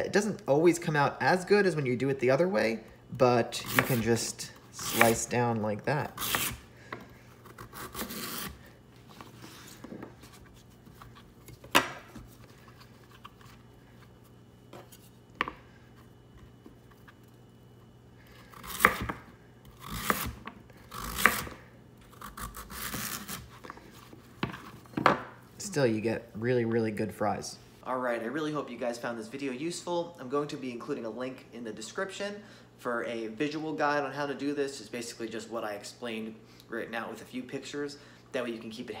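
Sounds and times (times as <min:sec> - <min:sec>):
knife slicing sweet potato: 0:03.5 - 0:05.4, 0:06.0 - 0:06.6, 0:07.4 - 0:08.6, 0:18.5 - 0:23.6.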